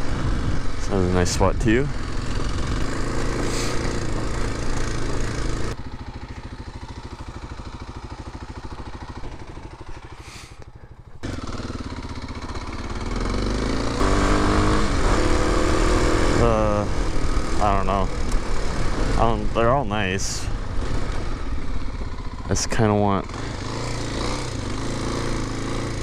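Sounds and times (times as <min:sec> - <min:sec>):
motorcycle engine running and revving: 0:00.0 - 0:26.0.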